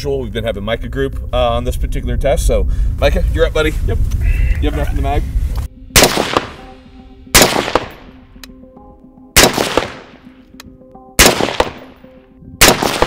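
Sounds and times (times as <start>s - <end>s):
rifle shots with echo: 6.0s - 8.2s, 9.4s - 10.3s, 11.2s - 12.0s, 12.6s - 13.0s.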